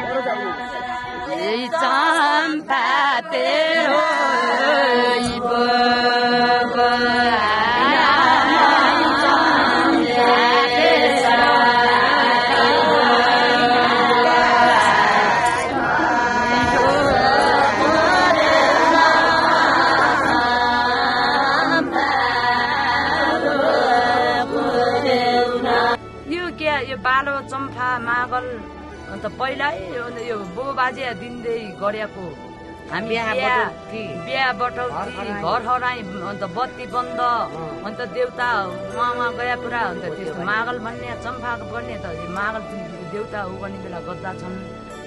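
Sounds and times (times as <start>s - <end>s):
women singing chant-like song: 0.0s - 26.0s.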